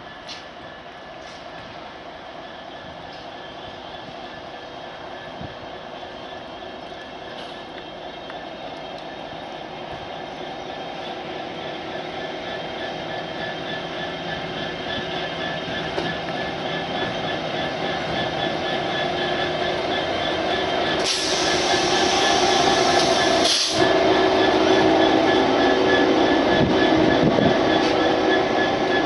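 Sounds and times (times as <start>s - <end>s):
diesel locomotive engine: 0.0s - 29.0s
loud rushing hiss: 21.0s - 24.0s.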